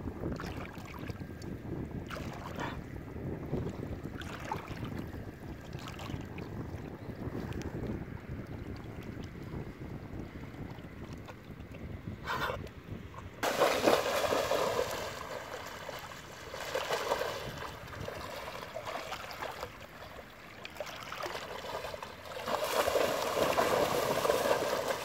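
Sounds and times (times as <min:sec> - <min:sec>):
dogs splashing through water: 0:13.4 - 0:25.0.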